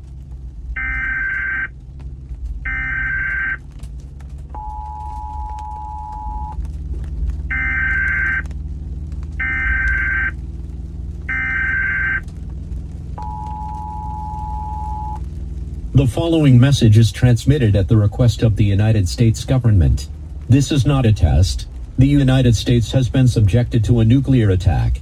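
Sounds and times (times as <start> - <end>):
low car cabin rumble: 0.0 - 25.0
screeching digital data bursts: 2.7 - 3.6, 9.4 - 10.4.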